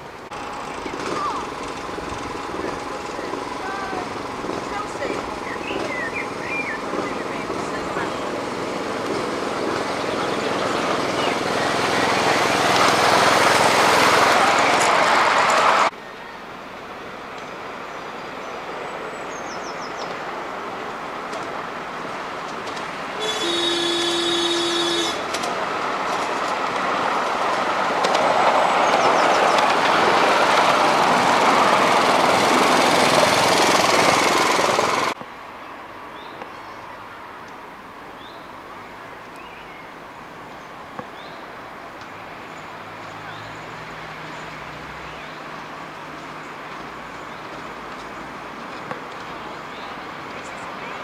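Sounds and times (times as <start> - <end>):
miniature train rumbling past: 0.0 - 35.2
open-air background: 0.0 - 51.0
train toot: 23.2 - 25.4.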